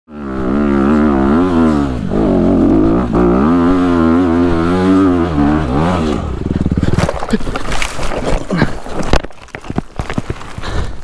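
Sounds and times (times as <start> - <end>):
dirt bike engine revving: 0.1 - 9.0.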